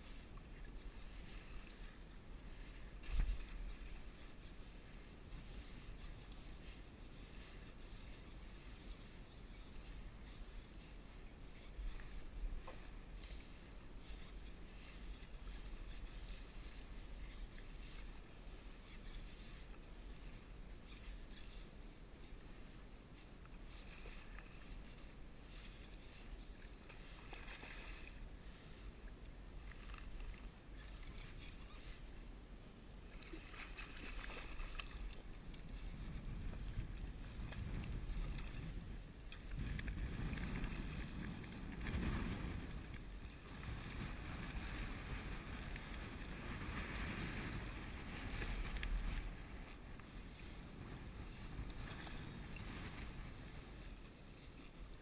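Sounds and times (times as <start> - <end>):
wind rumbling on microphone: 0.0 - 55.0
water slapping against hull: 33.1 - 53.4.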